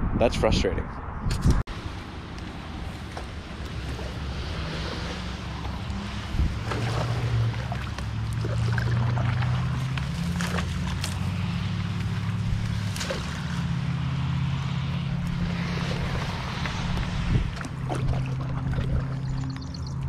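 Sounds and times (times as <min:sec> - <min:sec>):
paddle stroking through water: 0:01.7 - 0:19.6
water splashes and drips: 0:01.8 - 0:20.0.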